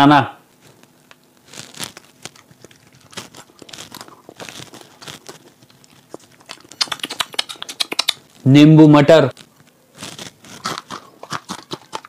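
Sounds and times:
wet chewing mouth smacks: 2.3 - 8.3, 10.6 - 12.0.

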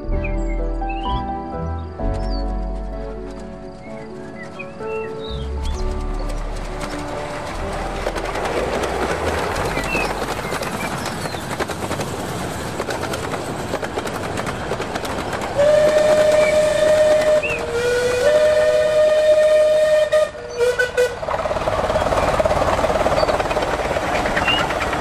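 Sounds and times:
model train wheels rattling: 6.0 - 17.7
steam locomotive whistle: 15.6 - 21.2.

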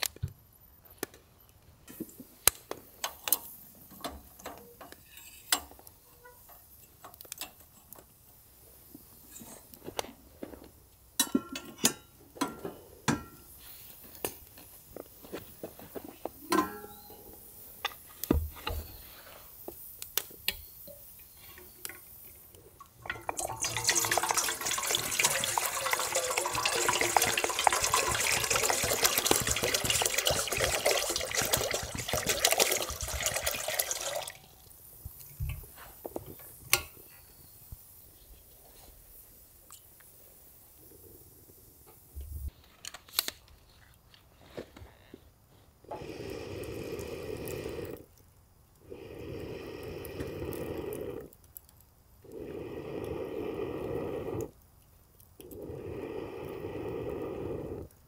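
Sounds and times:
water running: 21.6 - 35.4.

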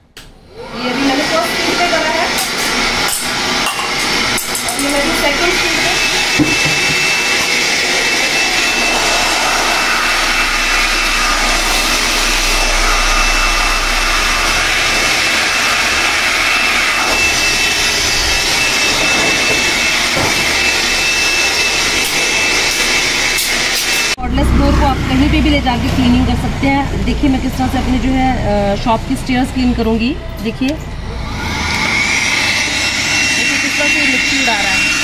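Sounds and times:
leaf blower running: 0.5 - 26.3, 31.1 - 35.0.

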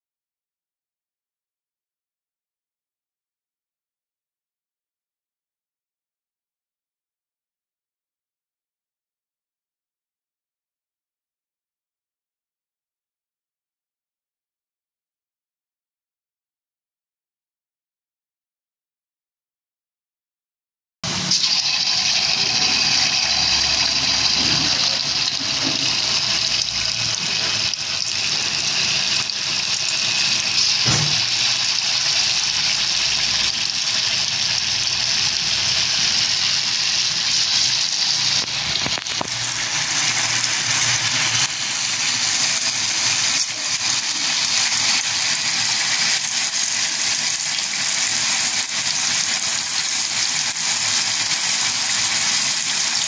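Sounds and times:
hot oil sizzling in a wok: 21.1 - 53.0.

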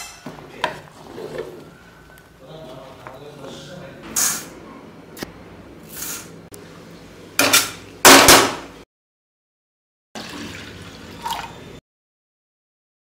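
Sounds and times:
water pouring into pot: 10.2 - 11.7.

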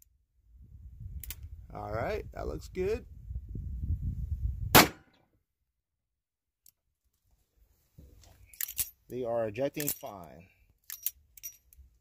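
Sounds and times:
revolver gunshot: 4.7 - 5.1.

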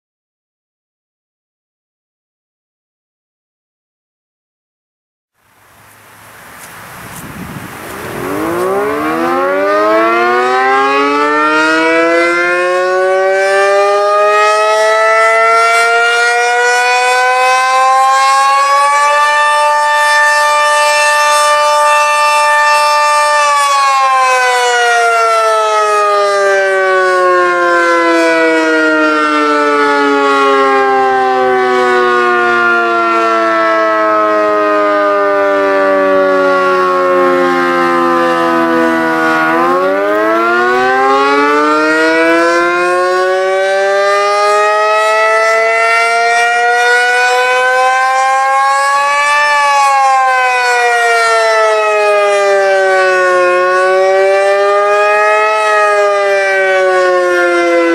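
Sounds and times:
dual-tone warning siren: 6.6 - 57.9.

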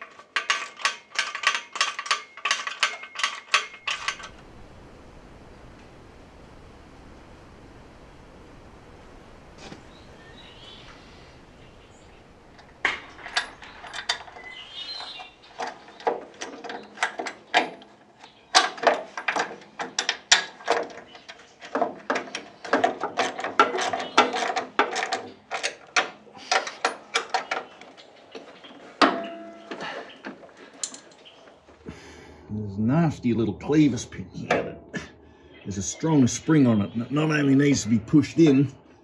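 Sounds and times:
metal lever clicks and clinks: 0.0 - 4.3, 12.8 - 21.5.

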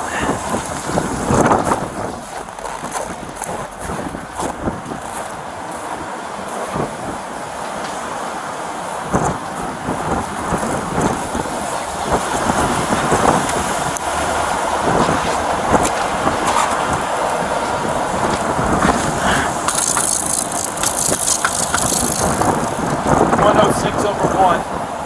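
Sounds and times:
wind on microphone: 0.0 - 7.4, 9.0 - 25.0
truck engines running: 0.0 - 25.0
footsteps crunching on snow: 0.3 - 6.6.

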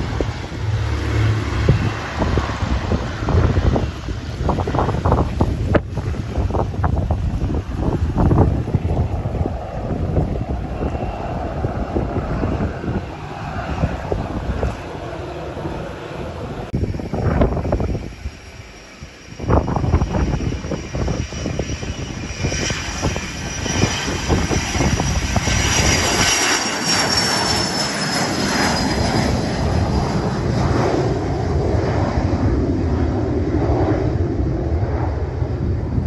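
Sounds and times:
jet engines at takeoff power: 0.0 - 36.0.

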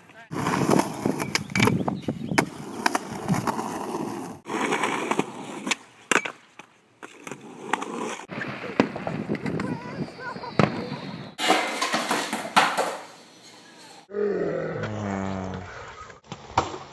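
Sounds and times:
skateboard wheels rolling on concrete: 0.0 - 14.1
skateboard clacking on ground: 4.6 - 7.9, 11.4 - 13.7.

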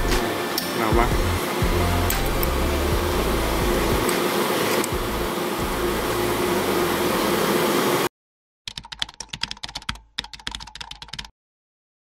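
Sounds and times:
keyboard typing clicks: 8.7 - 11.3.

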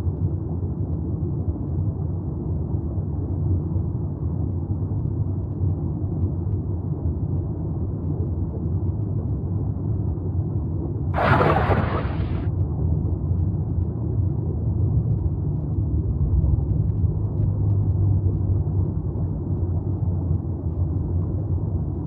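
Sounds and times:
low underwater rumble: 11.2 - 12.4
rush of hissing noise: 11.2 - 12.4.

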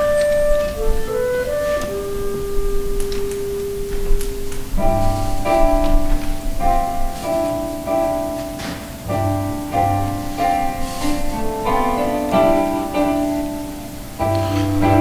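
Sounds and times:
orchestra playing slow instrumental: 9.2 - 15.0.

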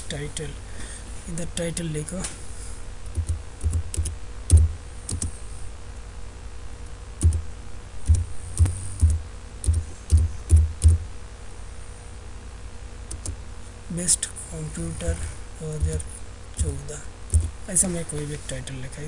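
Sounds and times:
computer keyboard keystrokes: 3.1 - 5.3, 7.2 - 7.4, 8.1 - 11.0, 13.1 - 13.4, 17.3 - 17.5.

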